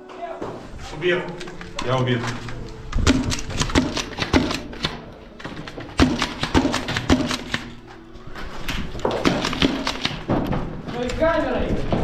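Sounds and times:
footsteps on gritty concrete: 0:07.8 - 0:09.4.

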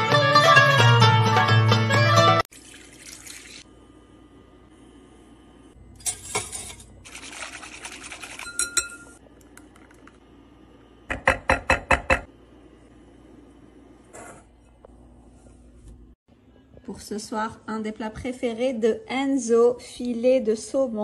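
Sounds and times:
metal clinking on glass: 0:08.4 - 0:09.2.

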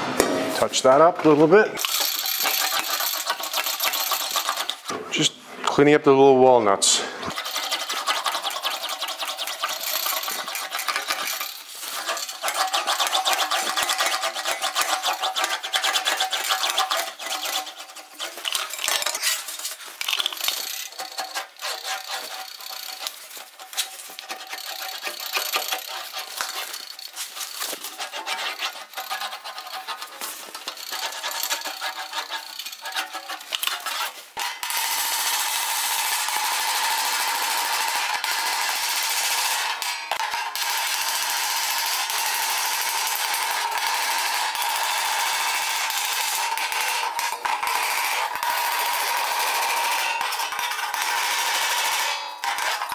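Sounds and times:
metal sheet rattling in english wheel: 0:07.3 - 0:34.2.

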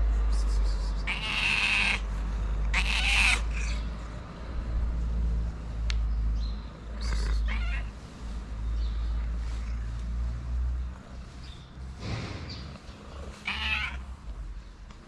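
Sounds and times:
cat meowing: 0:01.1 - 0:02.0, 0:02.7 - 0:03.8, 0:07.0 - 0:08.0, 0:13.4 - 0:14.2.

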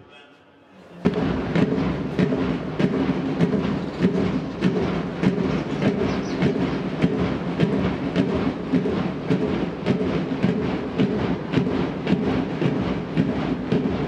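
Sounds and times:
band music with steady drumbeat: 0:01.0 - 0:14.0.

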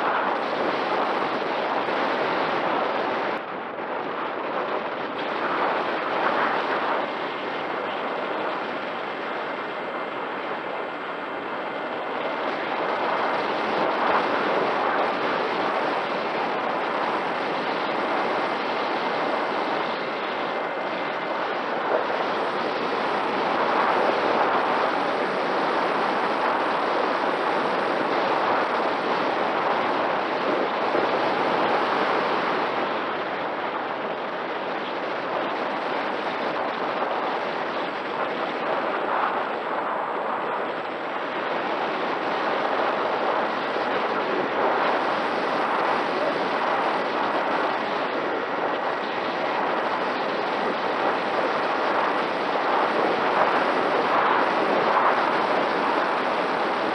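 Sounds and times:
wind rush: 0:00.0 - 0:56.9.

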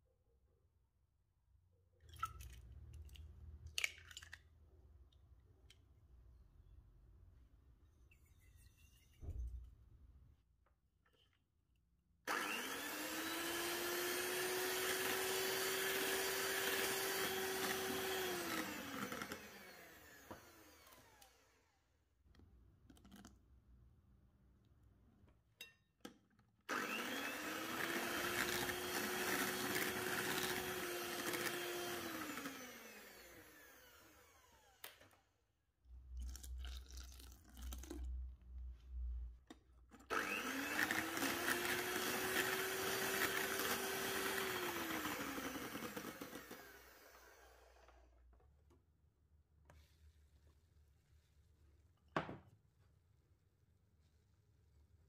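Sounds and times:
electric mixer motor whine: 0:12.3 - 0:21.9, 0:26.7 - 0:34.9, 0:40.1 - 0:48.2.

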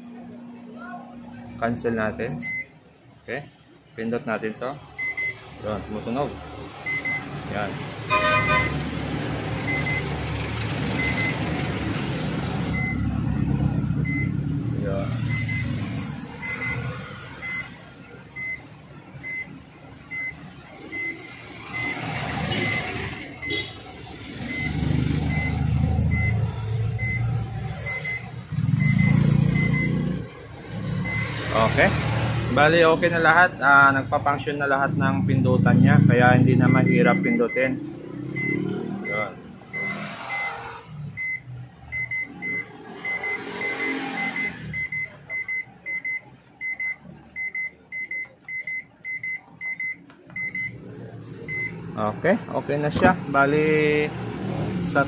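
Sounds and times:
microwave keypad beeps: 0:05.0 - 0:05.4, 0:06.9 - 0:07.3, 0:09.7 - 0:10.1, 0:12.7 - 0:13.1, 0:14.1 - 0:14.4, 0:15.3 - 0:15.8, 0:18.4 - 0:19.5, 0:21.8 - 0:23.7, 0:24.5 - 0:30.0, 0:36.7 - 0:37.7, 0:38.4 - 0:40.6, 0:41.2 - 0:50.8
short high beeps: 0:08.1 - 0:08.8, 0:38.4 - 0:40.6.

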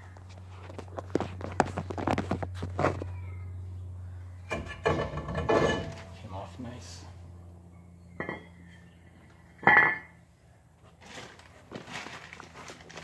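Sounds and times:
metal clanks with ring: 0:04.5 - 0:06.2, 0:07.9 - 0:08.9, 0:09.5 - 0:10.2.

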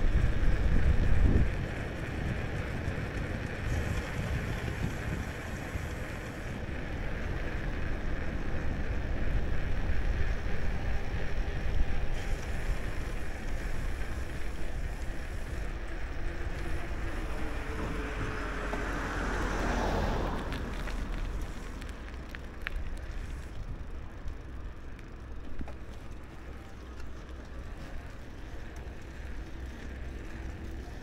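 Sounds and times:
wind on camera microphone: 0:00.0 - 0:06.8.

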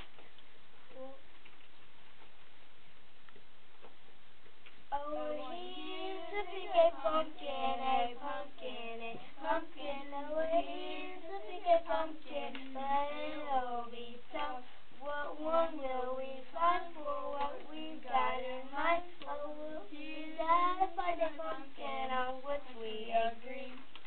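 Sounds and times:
young children singing: 0:04.9 - 0:24.0.

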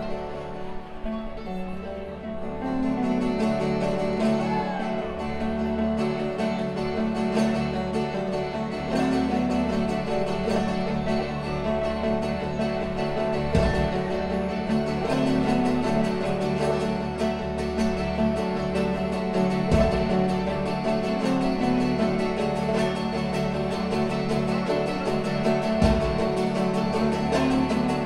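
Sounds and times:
electric guitar: 0:00.0 - 0:28.0
picked mandolin: 0:00.0 - 0:28.0
strummed acoustic guitar: 0:00.0 - 0:28.0
bass line: 0:16.6 - 0:27.5.

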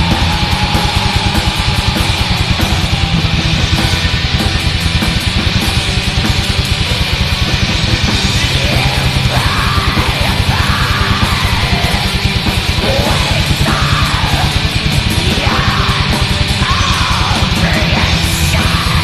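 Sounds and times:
distorted guitars: 0:00.0 - 0:19.0
very fast drumming: 0:00.0 - 0:19.0
shrieked vocals: 0:08.3 - 0:19.0.

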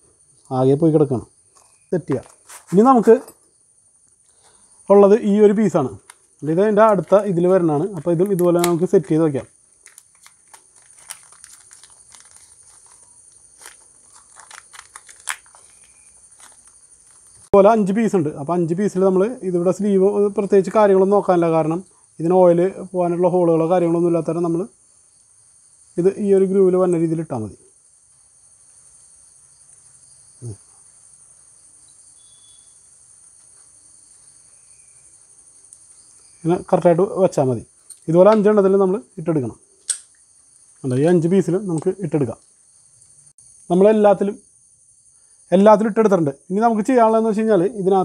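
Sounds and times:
crickets chirring: 0:00.0 - 0:48.0
plastic wrapping crinkling: 0:06.0 - 0:17.6.

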